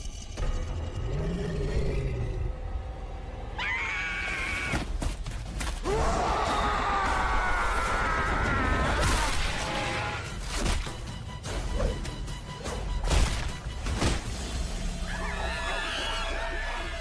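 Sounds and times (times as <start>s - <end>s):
ape growling: 0.8s - 3.6s
apes shrieking roar: 15.0s - 17.0s.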